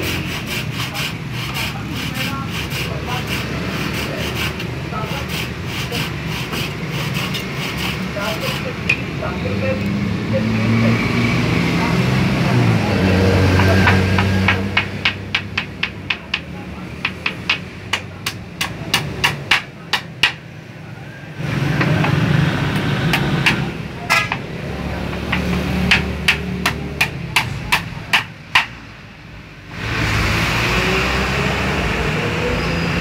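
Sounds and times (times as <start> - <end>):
hammer striking nails: 13.6 - 20.4, 25.1 - 28.8.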